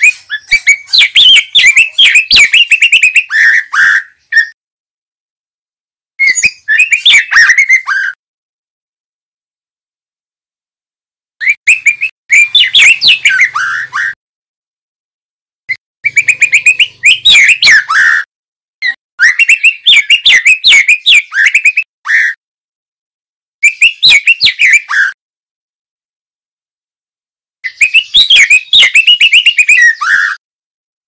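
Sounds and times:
bird singing varied whistles: 0.0s - 4.6s, 6.2s - 8.2s, 11.4s - 14.2s, 16.0s - 22.4s, 23.6s - 25.2s, 27.6s - 30.4s.

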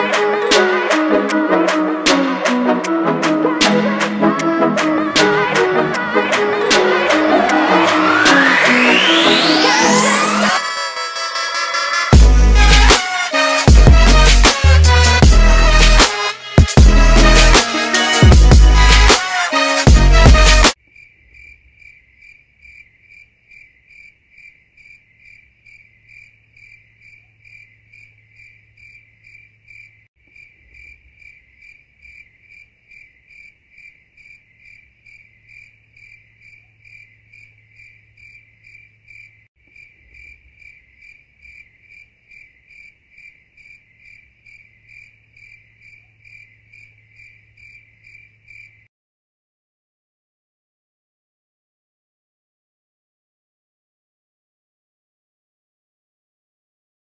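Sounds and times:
crickets chirping: 20.8s - 48.9s.

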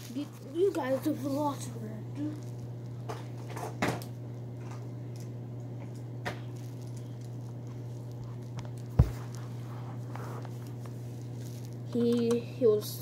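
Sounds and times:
steady low hum: 0.0s - 13.0s
footsteps on carpet: 9.0s - 10.9s.

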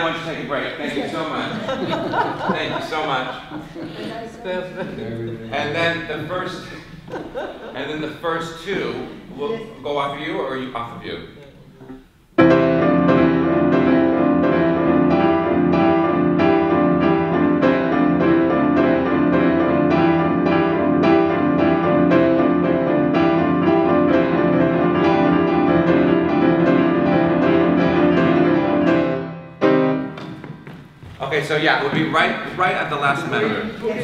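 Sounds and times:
grand piano playing quick notes: 12.4s - 30.4s.

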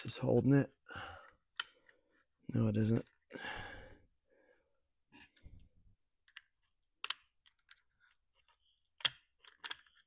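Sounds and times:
small plastic parts clicking: 6.2s - 10.0s.

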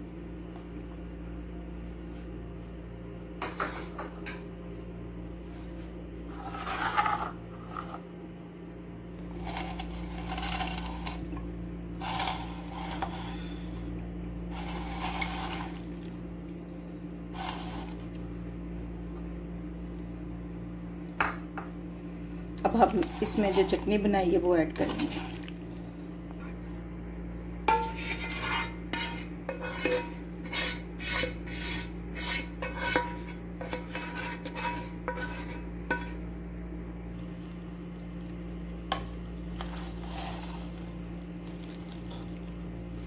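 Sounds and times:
low hum: 0.0s - 43.0s
spoon scraping a bowl: 6.3s - 8.0s, 9.4s - 11.2s, 12.0s - 13.6s, 14.5s - 15.8s, 17.4s - 18.0s, 22.8s - 23.9s, 27.7s - 36.2s, 39.6s - 40.8s.

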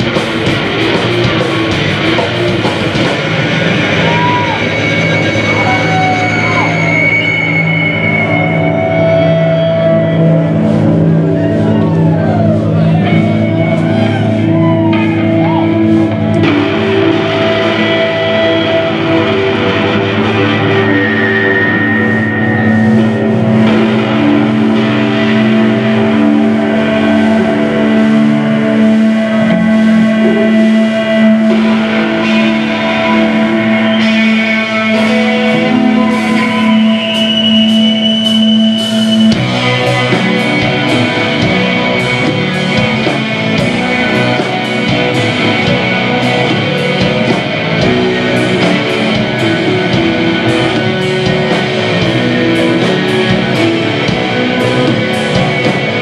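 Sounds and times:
steady drum beat: 0.0s - 6.8s, 22.6s - 56.0s
droning electric guitar chord: 0.0s - 56.0s
live rock band playing: 0.0s - 56.0s.

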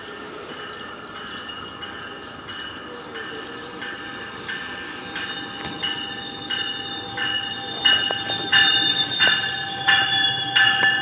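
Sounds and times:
train rumble: 0.0s - 11.0s
train warning bell ringing: 0.0s - 11.0s.

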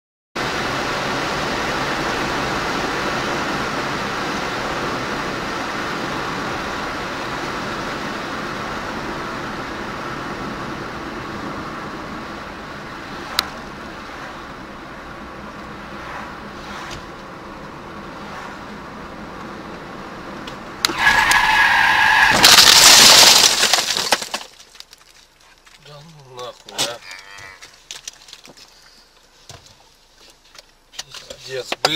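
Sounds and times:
road and engine noise inside car: 0.4s - 22.4s, 27.7s - 31.9s
windshield glass cracking: 20.4s - 31.9s
tyres squealing: 20.9s - 24.4s, 25.5s - 29.2s
loud crash on car: 20.9s - 24.6s.

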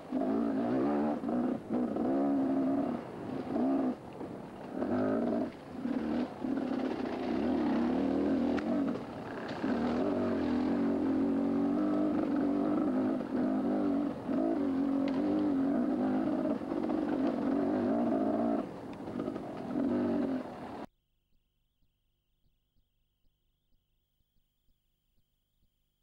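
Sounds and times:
mini bike engine running hard: 4.8s - 20.6s.

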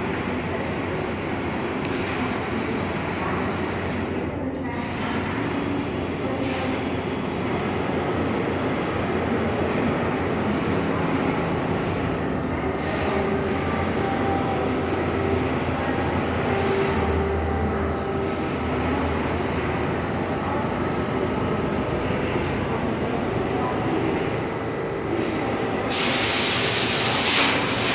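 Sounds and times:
subway train rumbling: 0.0s - 27.9s
faint motor hum: 7.6s - 25.9s.

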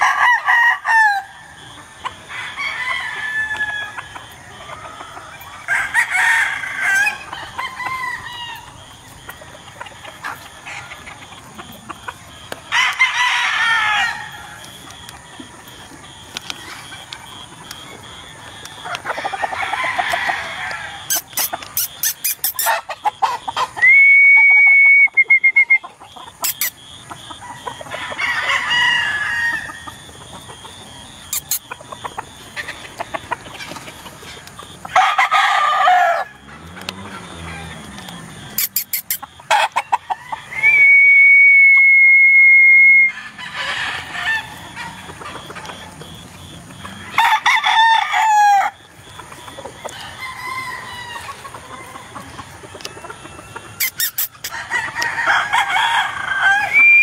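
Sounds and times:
chickens clucking: 0.0s - 57.0s
roosters crowing: 0.0s - 57.0s
sharp clicks: 37.9s - 39.3s.

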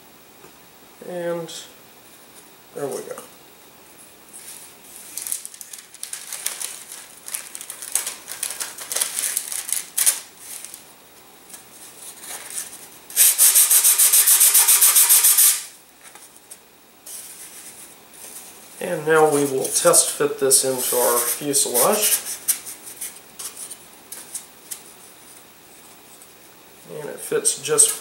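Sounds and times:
sandpaper scraping on wood: 12.4s - 15.7s, 19.3s - 23.1s.

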